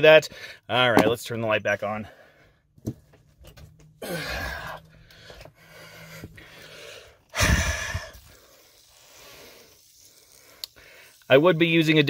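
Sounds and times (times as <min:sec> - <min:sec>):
man exhaling: 0:04.0 - 0:09.8.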